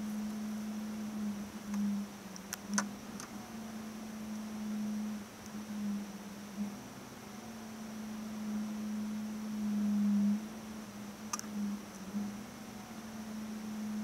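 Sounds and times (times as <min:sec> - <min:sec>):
steady low hum: 0:00.0 - 0:14.0
faint clicks: 0:01.7 - 0:03.4, 0:11.3 - 0:12.3.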